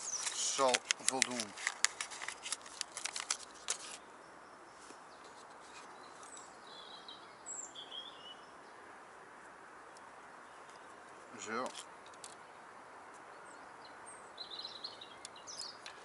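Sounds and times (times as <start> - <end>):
plastic packet crinkling: 0.0 - 4.0
outdoor background noise: 0.0 - 16.0
bird chirps: 4.2 - 8.6, 13.3 - 16.0.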